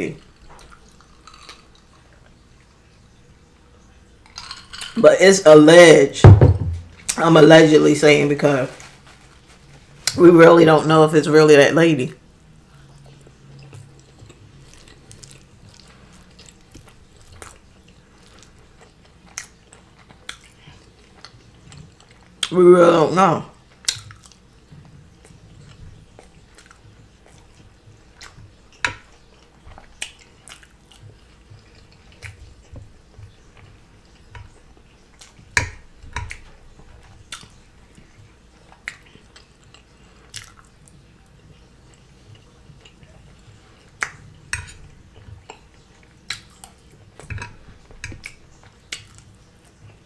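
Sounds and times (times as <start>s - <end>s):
wet chewing: 0.2s - 2.7s, 12.6s - 22.6s, 23.6s - 50.0s.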